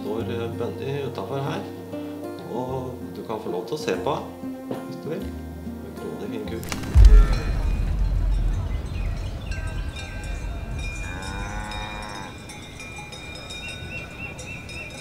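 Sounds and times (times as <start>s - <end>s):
high ringing tones: 6.7s - 15.0s
cow lowing: 11.0s - 12.6s.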